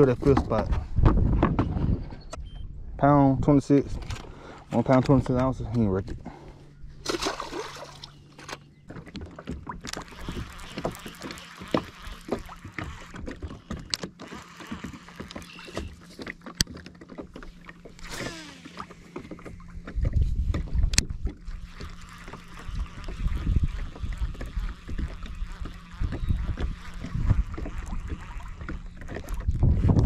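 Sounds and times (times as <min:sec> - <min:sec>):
fish splashing into water: 0:07.0 - 0:08.2
fishing reel clicking: 0:09.9 - 0:15.9, 0:18.0 - 0:19.0, 0:20.9 - 0:29.6.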